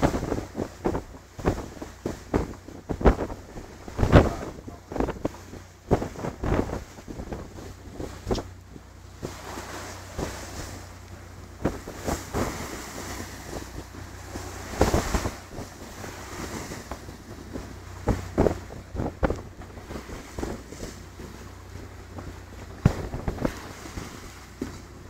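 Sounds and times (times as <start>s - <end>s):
boat engine low hum: 0.0s - 25.0s
waves rushing: 0.0s - 25.0s
wind buffeting microphone: 0.0s - 25.0s
sharp thumps and knocks: 8.0s - 8.5s.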